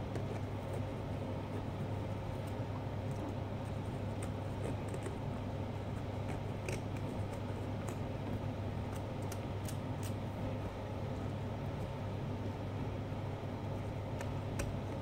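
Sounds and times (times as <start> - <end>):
knife cutting pumpkin rind: 0.0 - 8.2
steady low room hum: 0.0 - 15.0.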